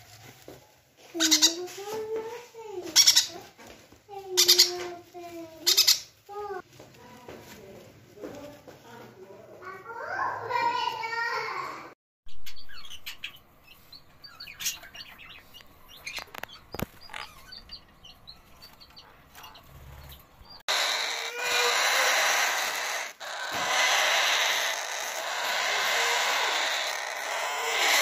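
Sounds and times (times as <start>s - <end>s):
parakeet chicks hissing: 20.6s - 28.0s.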